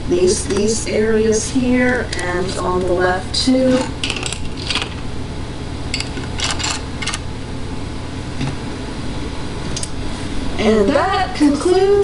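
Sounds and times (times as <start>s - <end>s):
low background hum: 0.0s - 12.0s.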